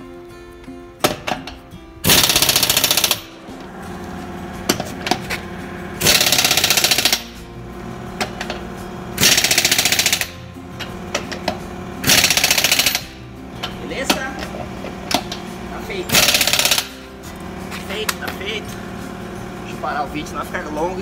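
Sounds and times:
pneumatic impact wrench hammering: 0:01.0 - 0:19.6.

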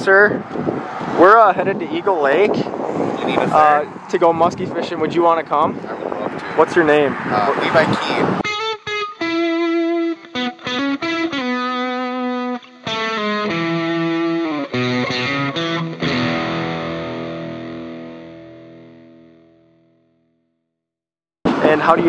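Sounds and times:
distorted electric guitar riff: 0:08.4 - 0:19.7.

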